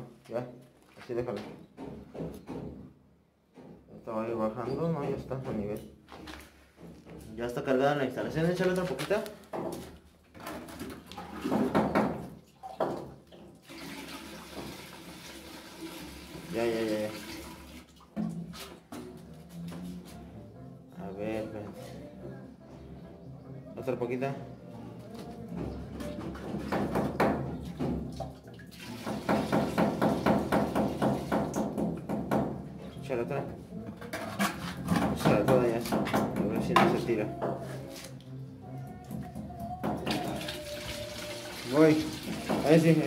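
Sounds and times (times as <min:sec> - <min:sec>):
water splashing and gurgling in pipe: 0:10.5 - 0:18.9, 0:27.8 - 0:31.6, 0:39.9 - 0:43.0.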